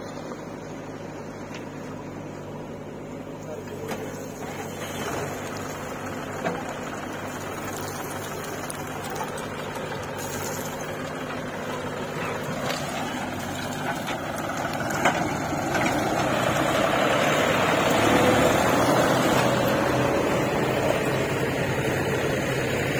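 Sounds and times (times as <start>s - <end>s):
backhoe digging earth: 0.0s - 22.9s
diesel engines running: 0.0s - 22.9s.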